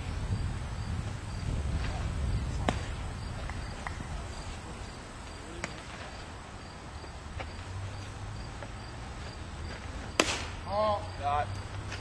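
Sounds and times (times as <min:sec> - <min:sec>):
insect chirping: 0:00.0 - 0:12.0
low rumble of ballfield ambience: 0:00.0 - 0:12.0.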